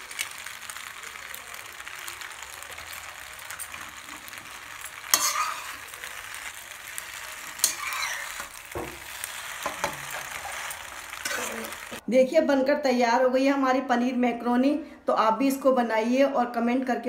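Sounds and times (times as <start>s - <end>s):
food sizzling in a pan: 0.0s - 12.0s
metal spatula scraping a pan: 2.9s - 12.0s.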